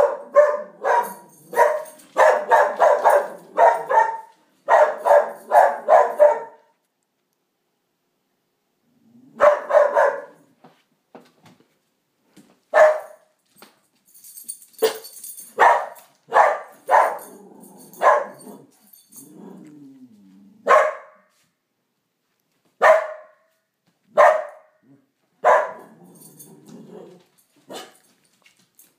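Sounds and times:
dog barking: 0.0s - 6.7s, 9.4s - 10.5s, 12.7s - 13.3s, 14.8s - 18.7s, 20.6s - 21.3s, 22.8s - 23.5s, 24.1s - 24.8s, 25.4s - 25.9s, 27.7s - 28.1s
dog growling: 8.8s - 9.4s, 17.2s - 20.7s, 24.8s - 25.1s, 25.8s - 27.3s.

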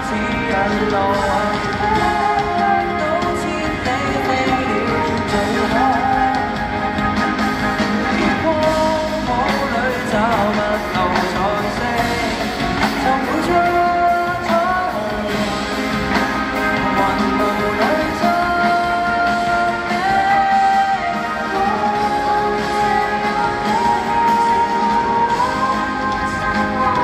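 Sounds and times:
man singing: 0.0s - 27.0s
piano and band accompaniment: 0.0s - 27.0s.

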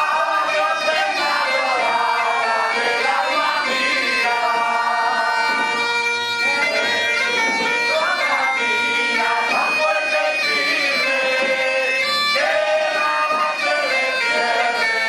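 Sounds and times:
bagpipe drone: 0.0s - 15.0s
bagpipe playing a tune: 0.0s - 15.0s.

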